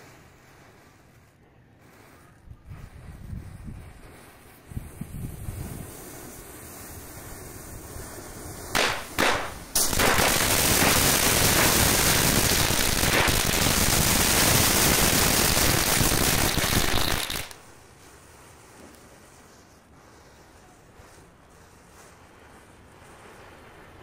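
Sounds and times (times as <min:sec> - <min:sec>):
firecrackers crackling and popping: 0:05.4 - 0:17.6
firecracker bangs: 0:08.7 - 0:17.6.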